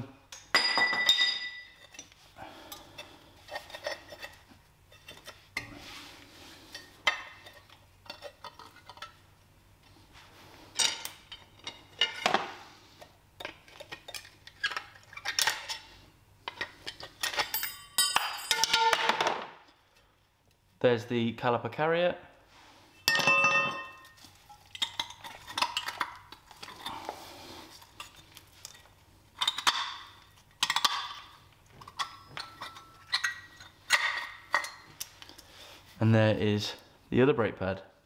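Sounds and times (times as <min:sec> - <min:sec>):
metal clinks and scrapes: 0:13.6 - 0:19.0.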